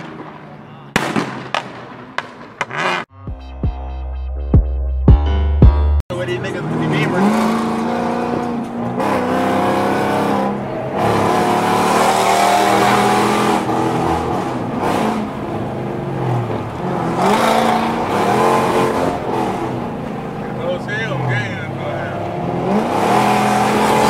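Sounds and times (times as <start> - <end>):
car engines revving: 6.1 - 24.0.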